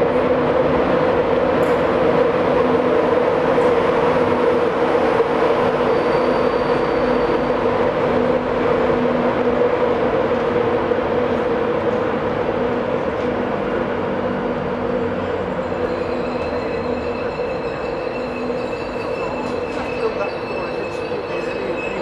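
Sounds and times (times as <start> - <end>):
train rumbling drone: 0.0 - 22.0
faint high-pitched squeal: 5.7 - 7.6, 15.5 - 22.0.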